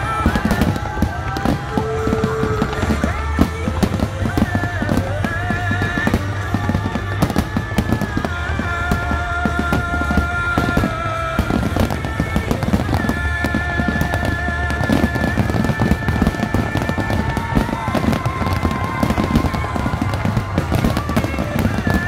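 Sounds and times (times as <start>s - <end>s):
firework shells bursting and crackling: 0.0s - 22.0s
music with long held notes: 0.0s - 22.0s.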